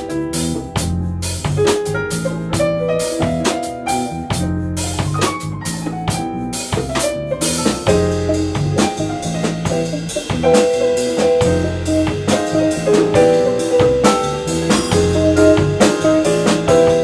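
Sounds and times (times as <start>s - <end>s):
drum kit steady beat: 0.0s - 17.0s
jazz fusion band playing: 0.0s - 17.0s
keyboard: 0.0s - 17.0s
sustained bass line: 4.2s - 17.0s.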